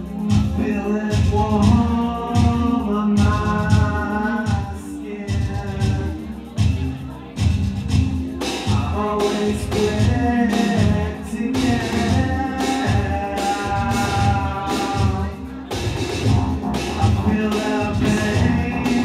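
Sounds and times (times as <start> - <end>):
person singing: 0.0 - 7.3, 8.3 - 19.0
pulsing bass beat: 0.0 - 19.0.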